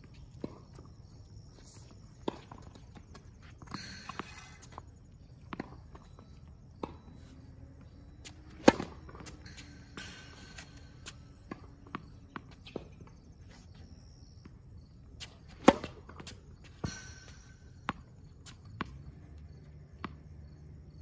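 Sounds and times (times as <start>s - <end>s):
tennis ball bouncing on hard court: 7.8s - 13.3s, 15.2s - 19.0s
racket striking ball: 8.2s - 12.9s, 15.2s - 18.0s.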